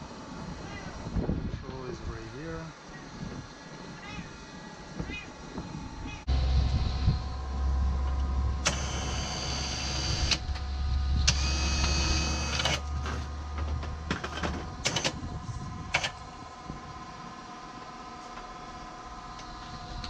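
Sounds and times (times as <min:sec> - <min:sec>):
low steady hum: 0:00.0 - 0:20.0
electric winch running: 0:06.3 - 0:20.0.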